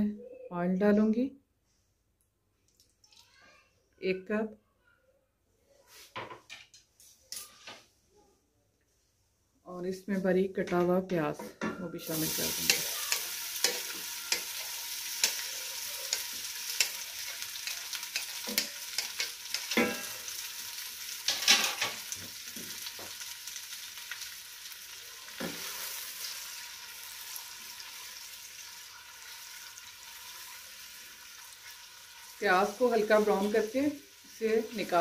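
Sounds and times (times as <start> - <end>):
onions sizzling in hot oil: 12.0 - 35.0
spatula clicking and knocking: 16.0 - 20.0.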